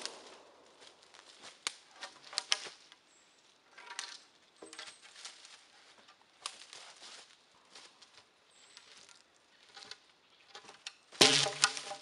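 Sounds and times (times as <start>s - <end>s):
footsteps in dry leaves: 0.0s - 2.9s, 4.8s - 9.9s, 11.1s - 12.0s
wooden poles knocking together: 9.7s - 12.0s.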